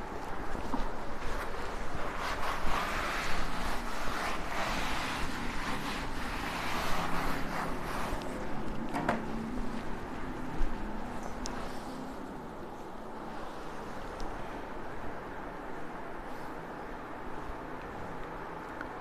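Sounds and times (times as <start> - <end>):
cloth wiping a blackboard: 0.0 - 12.4.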